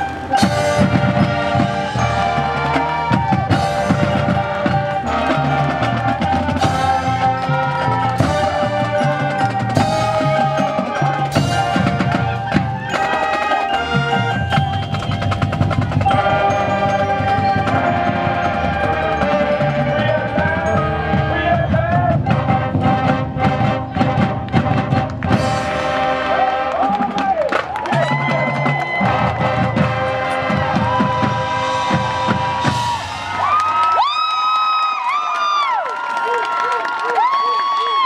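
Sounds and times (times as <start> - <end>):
mallet percussion: 0.0 - 23.0
brass chords: 0.0 - 33.5
drums: 0.0 - 36.3.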